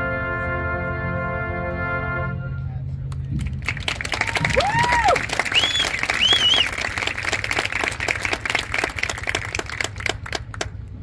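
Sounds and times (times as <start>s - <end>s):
audience applauding: 3.4s - 10.8s
whistles: 4.8s - 6.9s.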